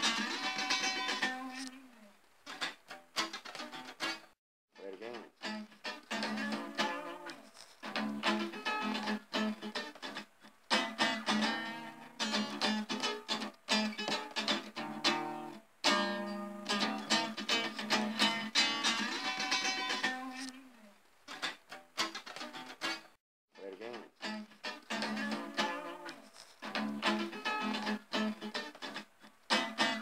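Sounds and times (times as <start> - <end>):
blues guitar tune: 0.0 - 1.8, 2.5 - 4.3, 5.0 - 20.5, 21.3 - 23.1, 23.8 - 30.0.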